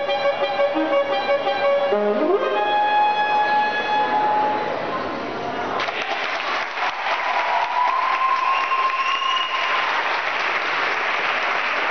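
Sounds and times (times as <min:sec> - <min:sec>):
audience applauding: 0:05.8 - 0:11.9.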